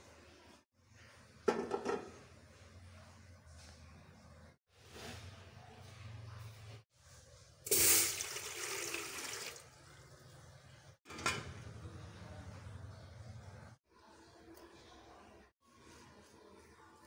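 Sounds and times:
water pouring into steel pot: 7.7 - 9.7.

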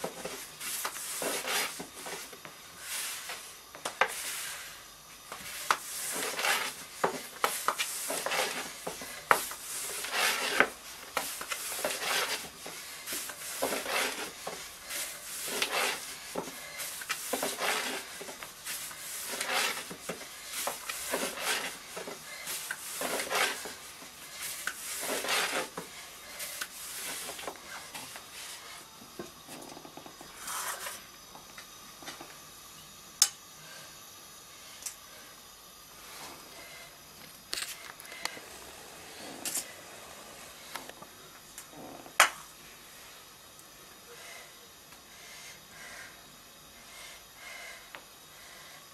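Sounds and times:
rolling pin rubbing dough: 0.0 - 29.0.

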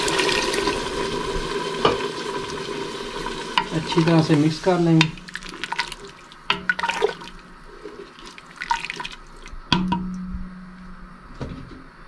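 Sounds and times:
liquid sloshing and splashing: 5.1 - 9.6.

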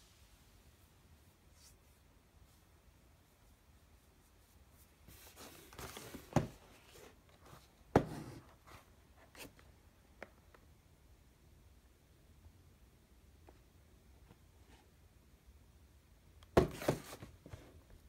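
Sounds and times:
cardboard box rustling and scraping: 5.1 - 8.5.

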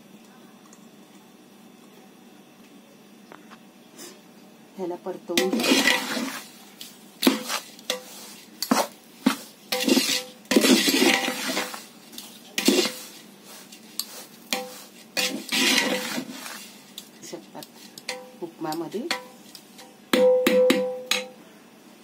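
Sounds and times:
spatula scraping metal pot: 5.3 - 6.6, 7.2 - 18.4.

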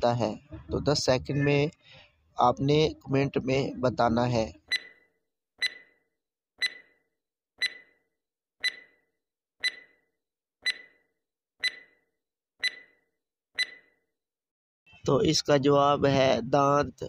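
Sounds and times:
countdown timer ticking: 5.6 - 6.0, 6.6 - 7.0, 7.6 - 8.0, 8.6 - 9.0, 9.6 - 10.0, 10.6 - 11.0, 11.6 - 12.0, 12.6 - 13.0, 13.6 - 13.9.

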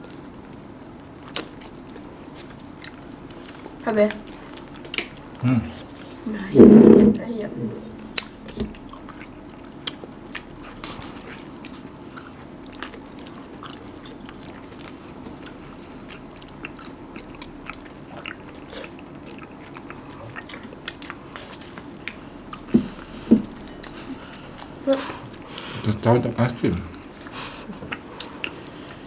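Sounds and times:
low steady hum: 0.0 - 29.0
people eating ice cream: 1.2 - 7.0, 7.8 - 29.0
louder knocks: 6.6 - 7.3.

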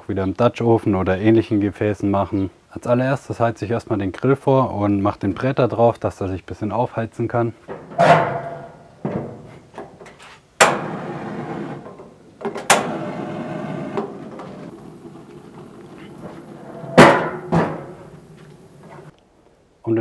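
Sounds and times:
metal grill hood clanging: 7.6 - 19.1
gas burning rush: 10.6 - 19.1.

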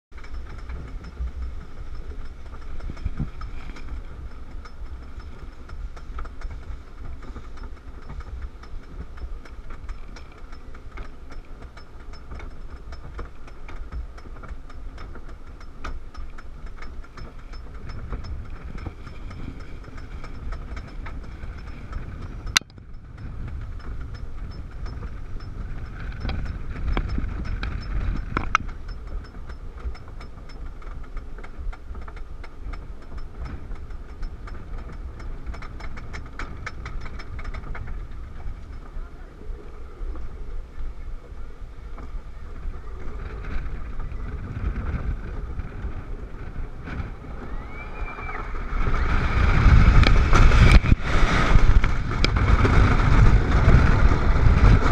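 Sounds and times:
chain lift rumbling: 0.1 - 54.9
ratchet clicking: 0.2 - 39.0.

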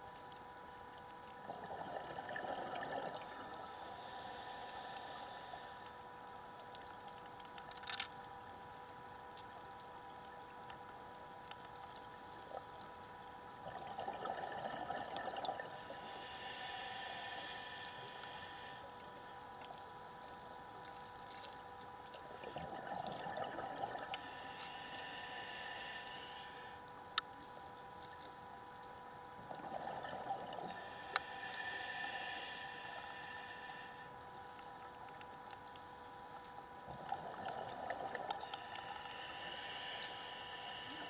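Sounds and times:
faint steady tone: 0.0 - 41.0
exhaled bubbles gurgling: 1.4 - 3.7, 13.6 - 16.2, 22.2 - 24.2, 29.4 - 31.0, 36.9 - 41.0
regulator inhalation hiss: 3.6 - 6.0, 15.8 - 18.9, 24.2 - 26.8, 30.8 - 34.1, 38.6 - 41.0
small bubble crackles: 34.3 - 38.7.

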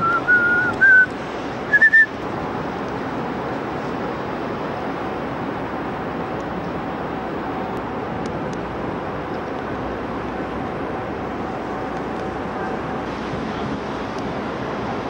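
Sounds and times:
person whistling: 0.0 - 1.1, 1.7 - 2.1
city background noise: 0.0 - 15.0.

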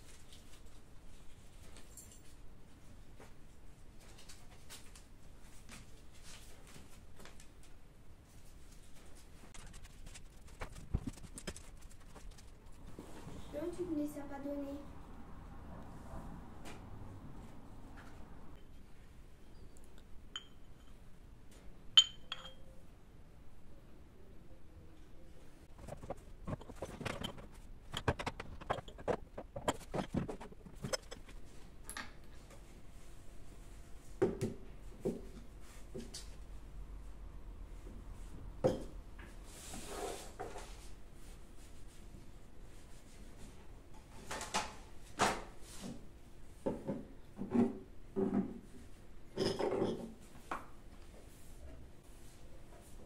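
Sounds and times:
ringing clink: 20.3 - 21.0, 22.0 - 22.7
ceramic objects knocking and clicking: 22.0 - 22.6, 25.8 - 32.1.

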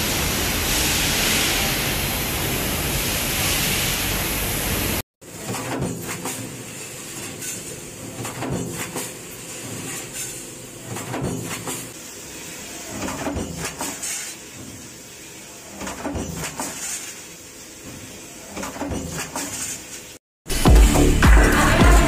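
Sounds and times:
steady machine hiss: 0.0 - 5.0.

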